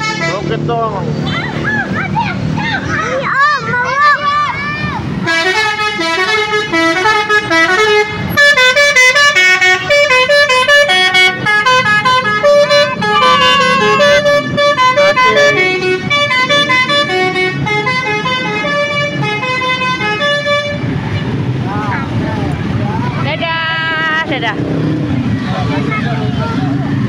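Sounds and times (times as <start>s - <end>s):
bus musical horn tune: 0.0s - 0.5s, 5.2s - 21.4s.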